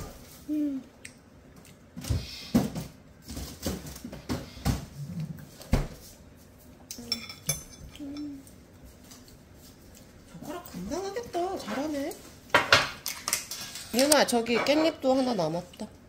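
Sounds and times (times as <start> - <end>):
spoon and chopsticks clinking on bowl: 6.9 - 8.4.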